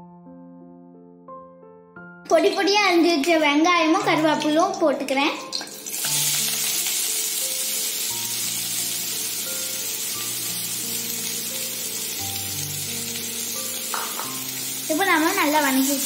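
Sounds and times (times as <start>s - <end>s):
onions sizzling in hot oil: 5.4s - 16.0s.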